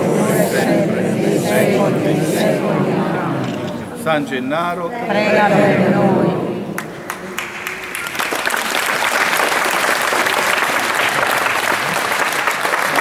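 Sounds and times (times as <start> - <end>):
congregation applauding: 6.8 - 13.0.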